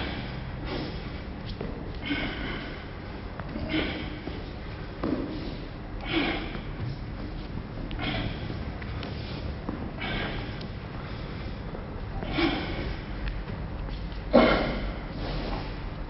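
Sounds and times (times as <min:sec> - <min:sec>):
person exhaling forcefully: 0:02.0 - 0:02.8, 0:03.6 - 0:04.3, 0:05.3 - 0:06.8, 0:08.0 - 0:08.6, 0:10.0 - 0:11.6, 0:12.2 - 0:13.2.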